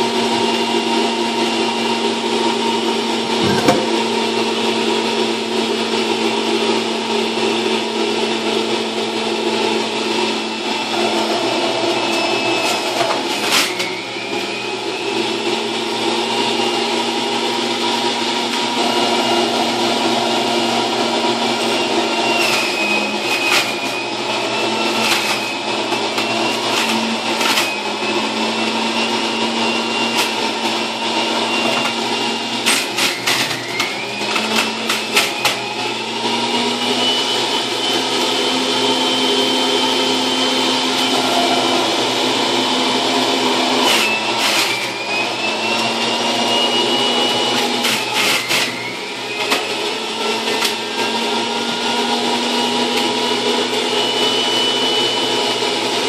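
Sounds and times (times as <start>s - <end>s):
juicer motor whining: 0.0s - 56.0s
produce being shredded: 10.7s - 36.9s, 39.6s - 54.2s.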